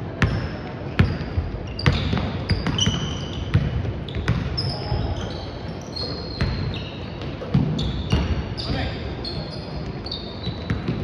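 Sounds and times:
sneakers squeaking on floor: 0.2 - 11.0
basketball bouncing on hardwood: 1.0 - 5.2.

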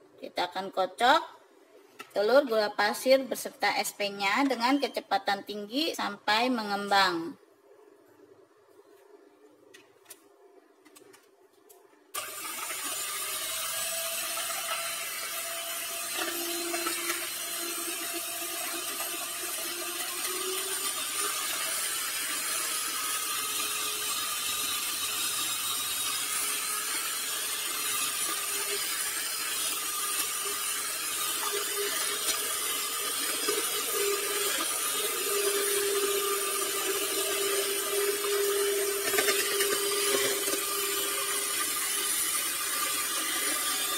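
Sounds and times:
electric hand mixer whisking: 12.2 - 43.9.

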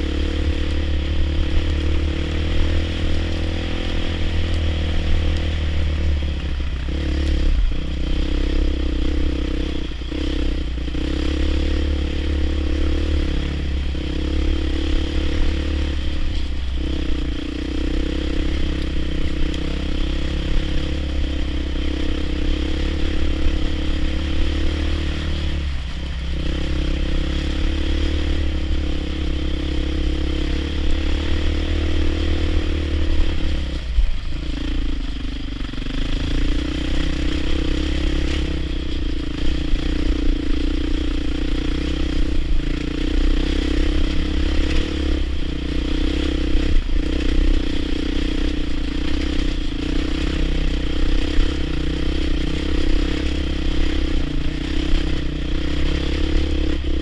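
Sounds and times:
heavy low rumble: 0.0 - 36.3
off-road motorcycle engine: 0.0 - 57.0.

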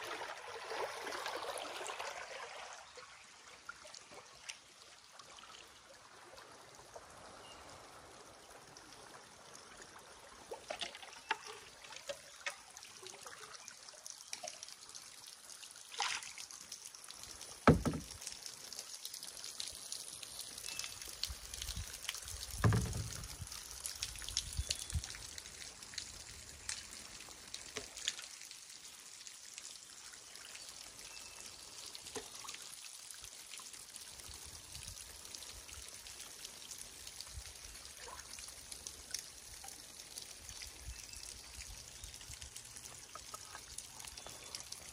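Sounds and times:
creek water trickling and lapping: 0.0 - 44.9
drips and small splashes: 0.0 - 44.9
knocks on canoe: 17.7 - 18.1, 22.6 - 23.2.

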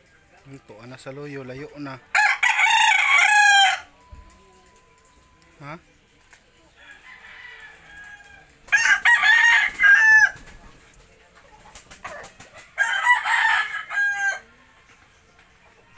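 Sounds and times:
rooster crowing: 2.1 - 3.9, 6.8 - 10.4, 12.8 - 14.5.

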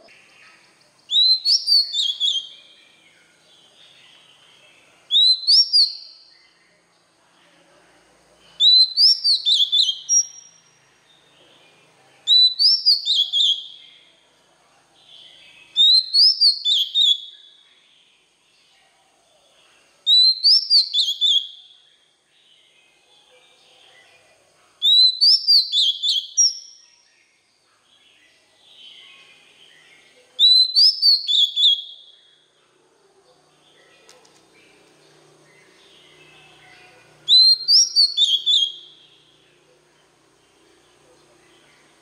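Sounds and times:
soft bird twittering: 0.0 - 14.2, 15.0 - 32.6, 33.5 - 42.0
bird whistling phrases: 1.1 - 2.8, 5.1 - 6.2, 8.6 - 10.5, 12.3 - 13.8, 15.8 - 17.4, 20.1 - 21.6, 24.8 - 26.8, 30.4 - 32.1, 37.3 - 39.0.

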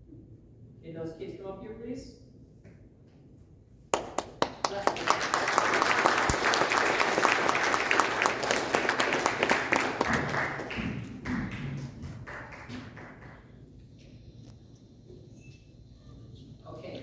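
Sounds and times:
audience clapping: 3.9 - 13.8.

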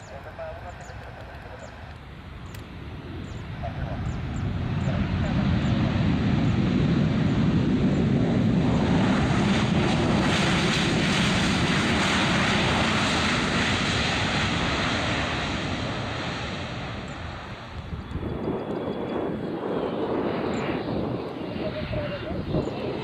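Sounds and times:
jet engines rumbling: 0.0 - 23.0.

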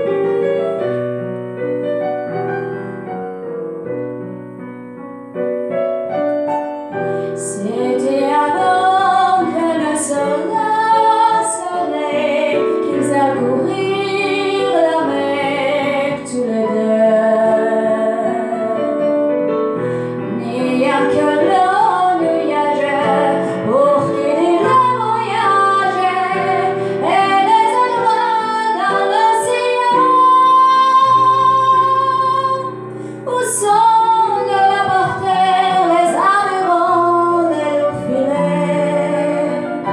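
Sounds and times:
digital piano accompaniment: 0.0 - 39.9
woman singing: 7.4 - 19.1, 20.2 - 39.9.

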